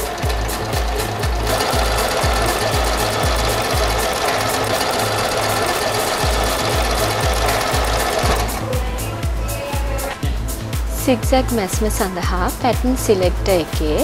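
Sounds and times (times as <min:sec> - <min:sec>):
sewing machine running: 0:00.0 - 0:08.7
background music with low beat: 0:00.0 - 0:14.0.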